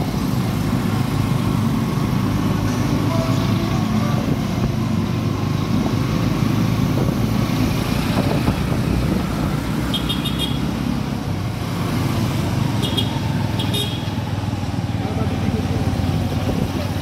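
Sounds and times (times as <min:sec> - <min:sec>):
road and wind noise: 0:00.0 - 0:17.0.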